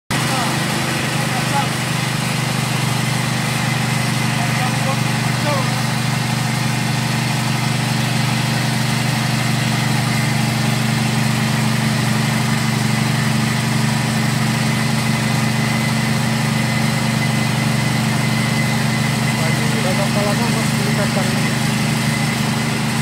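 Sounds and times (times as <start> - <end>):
grinding machine humming: 0.1 - 23.0.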